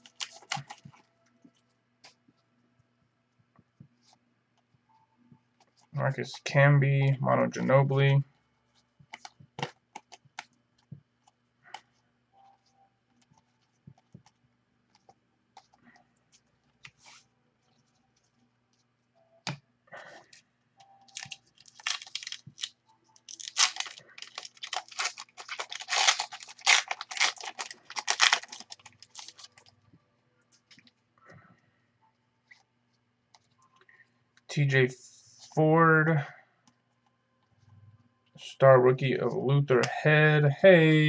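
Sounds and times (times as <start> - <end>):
wrapper tearing and crinkling: 0.0 - 1.0, 21.1 - 29.7.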